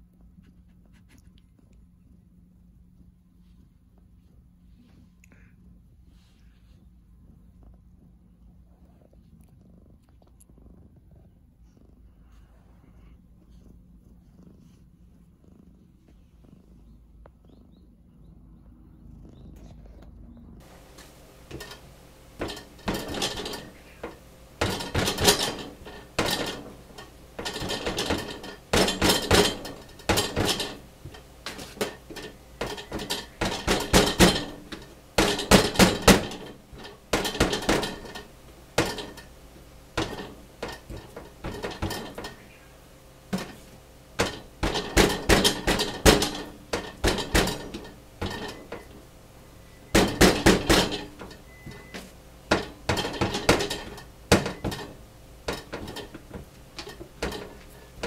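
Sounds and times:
fork tines knocking on cutting board: 0:49.9 - 0:54.9.

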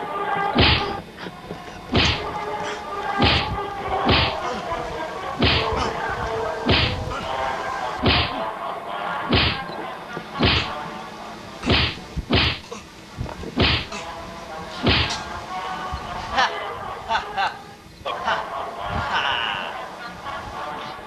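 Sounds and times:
background music: 0:00.0 - 0:21.0
punch impacts: 0:00.6 - 0:01.0, 0:01.9 - 0:02.3, 0:03.2 - 0:04.4, 0:05.4 - 0:05.9, 0:06.7 - 0:07.0, 0:08.0 - 0:08.4, 0:09.3 - 0:09.6, 0:10.4 - 0:10.8, 0:11.6 - 0:12.7, 0:13.6 - 0:13.9, 0:14.8 - 0:15.2.

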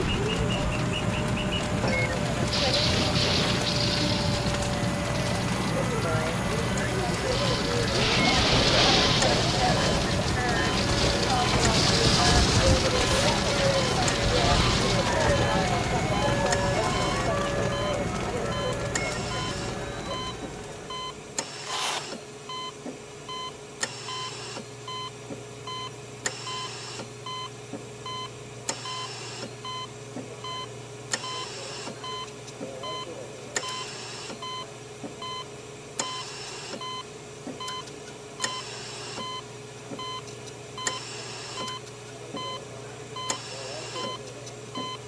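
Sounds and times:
electronic beeping: 0:00.0 - 0:21.2.

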